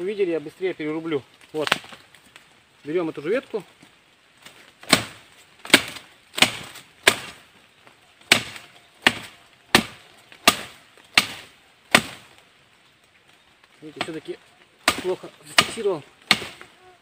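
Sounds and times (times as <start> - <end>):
shovel blade chopping branch: 4.8 - 7.4, 8.3 - 12.3, 14.8 - 16.7.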